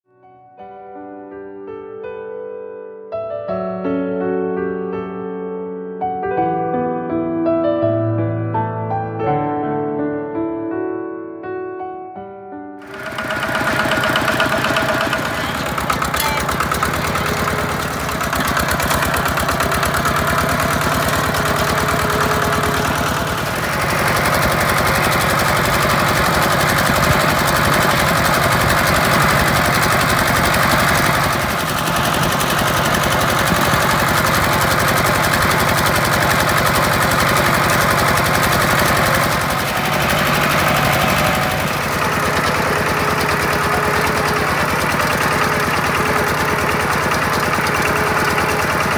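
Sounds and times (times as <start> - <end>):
diesel engine chugging: 12.8 - 48.9.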